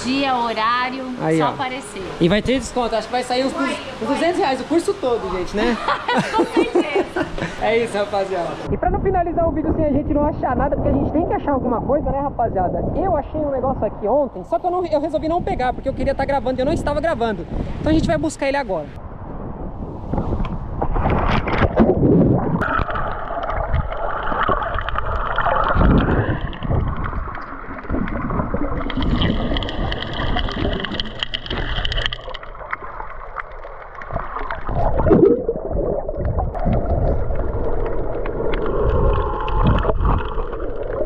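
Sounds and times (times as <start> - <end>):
muffled underwater rushing: 19.7 - 41.0
water gurgling and bubbling: 20.0 - 41.0.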